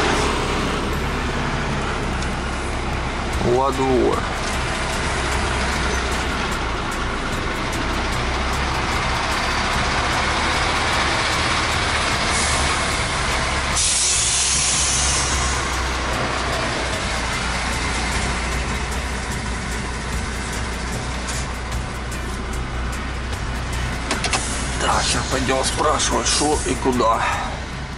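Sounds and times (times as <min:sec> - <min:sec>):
diesel truck engine running: 0:00.0 - 0:27.9
air brakes hissing: 0:12.2 - 0:13.0, 0:13.7 - 0:16.0, 0:23.8 - 0:24.8.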